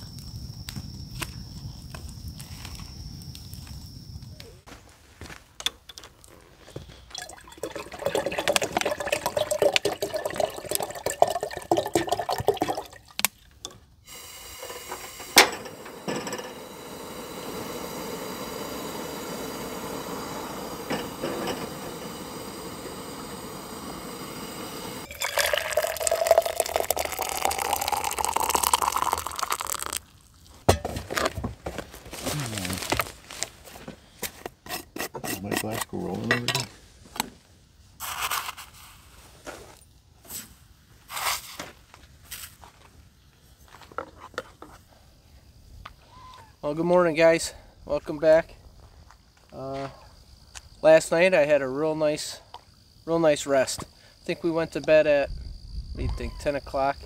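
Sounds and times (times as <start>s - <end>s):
liquid pouring into container: 7.1s - 13.3s, 25.0s - 30.4s.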